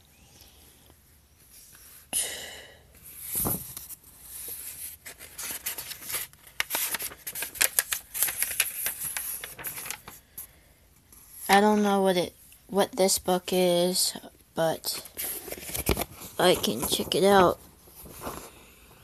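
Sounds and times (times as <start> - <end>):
book pages flipping: 3.0 - 10.5, 15.0 - 18.7.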